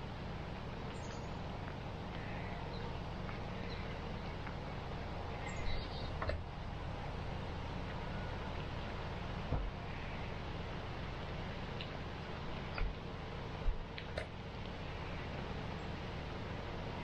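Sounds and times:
faint bird chirps: 5.3s - 6.2s.

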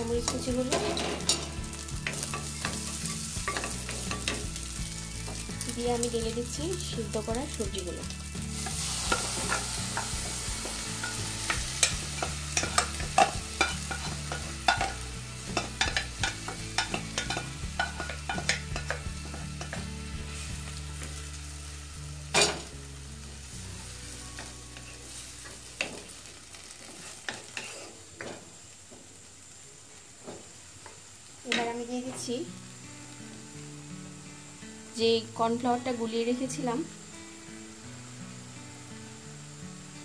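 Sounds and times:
water hissing in hot pan: 0.0s - 40.0s
spatula scraping against pan: 26.8s - 28.4s.

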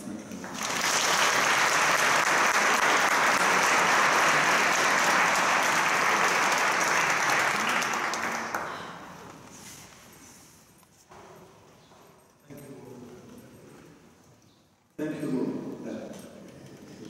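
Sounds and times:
audience applauding: 0.4s - 9.0s.

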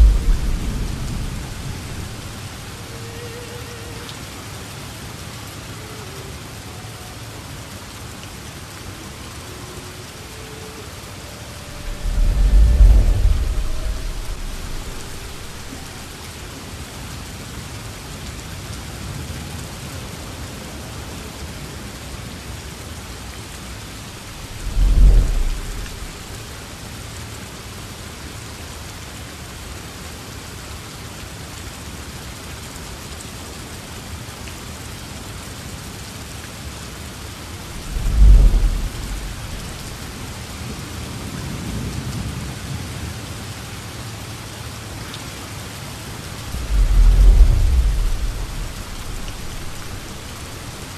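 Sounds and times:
deep low boom: 0.0s - 2.6s, 11.4s - 16.1s, 24.3s - 26.4s, 37.6s - 40.4s, 46.3s - 50.6s
rain hissing: 0.0s - 18.7s, 22.8s - 28.4s, 35.6s - 42.3s, 43.0s - 50.9s.

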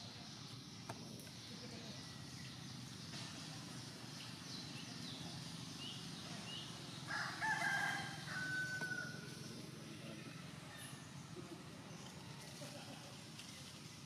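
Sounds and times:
rooster crowing: 7.1s - 9.3s.

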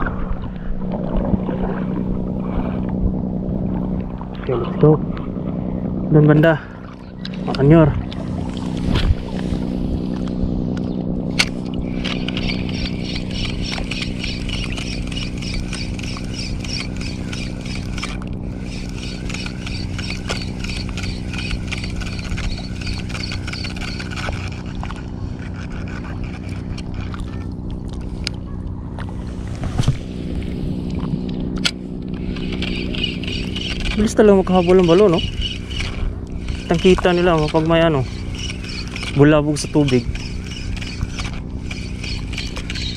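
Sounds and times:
steady low hum: 0.0s - 42.9s
fishing reel ticking: 11.4s - 28.1s, 31.2s - 42.9s.

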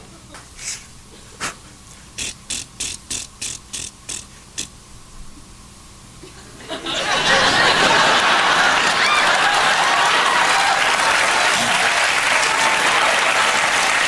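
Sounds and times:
performer making sharp clicks: 2.2s - 4.8s
audience laughter: 6.3s - 14.0s
audience applause: 6.8s - 14.0s.

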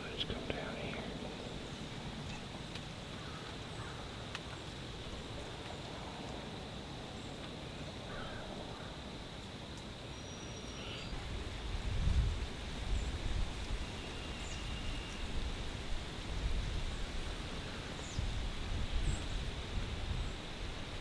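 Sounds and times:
faint bird calls: 0.0s - 6.0s, 7.1s - 9.1s, 10.1s - 11.2s
outdoor background noise: 0.0s - 21.0s.

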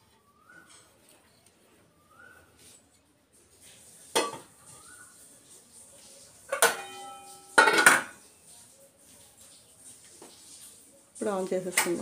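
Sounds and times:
metal lid clanging: 4.2s - 4.5s, 6.5s - 8.2s
steel pot clanking down: 4.2s - 4.6s, 6.5s - 8.2s.

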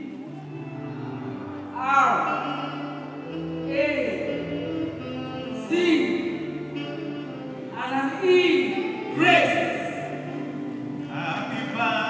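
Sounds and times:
held instrumental chords: 0.0s - 12.0s.

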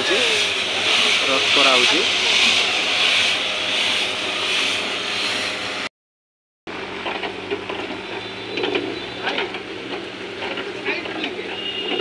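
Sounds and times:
rice grains rattling in rotating drum: 0.0s - 4.2s.

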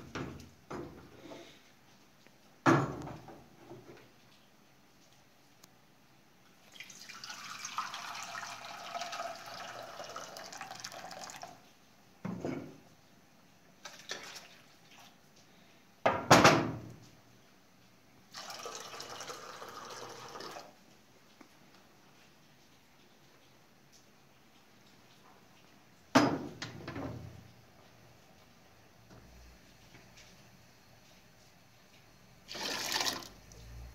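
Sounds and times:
water pouring into a pot: 6.6s - 11.7s, 13.8s - 15.2s, 18.3s - 20.8s, 32.4s - 33.6s.

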